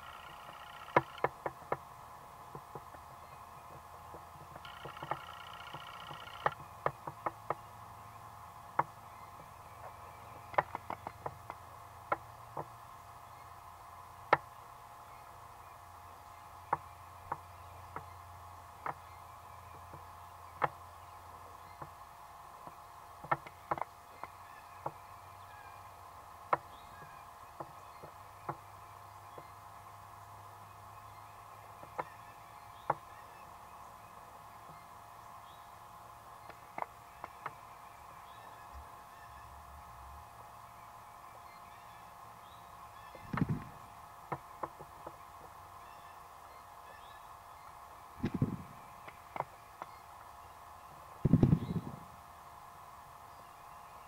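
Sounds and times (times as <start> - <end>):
sharp clicks and knocks: 0.0 - 1.8, 3.7 - 7.6
faint steady hum: 0.0 - 54.0.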